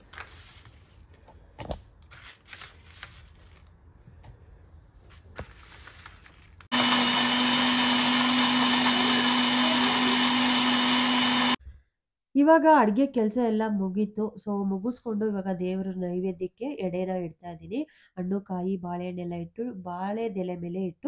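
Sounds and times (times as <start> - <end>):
mixer grinder humming: 6.7 - 11.6.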